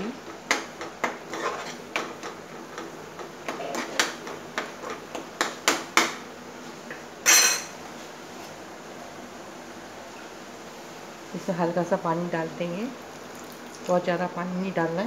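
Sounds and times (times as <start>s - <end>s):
spatula scraping frying pan: 0.8s - 5.0s.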